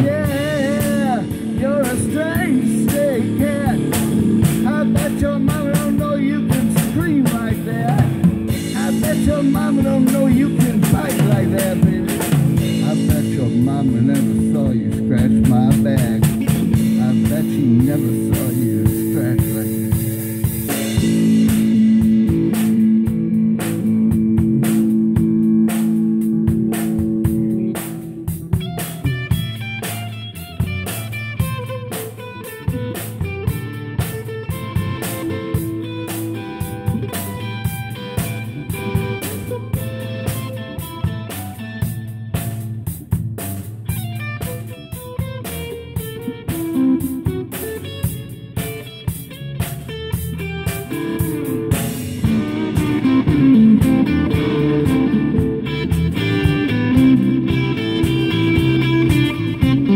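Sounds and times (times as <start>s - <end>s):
person singing: 0.0s - 20.0s, 33.5s - 41.7s, 50.8s - 59.9s
drum kit beat: 0.0s - 59.9s
electric guitar: 0.0s - 59.9s.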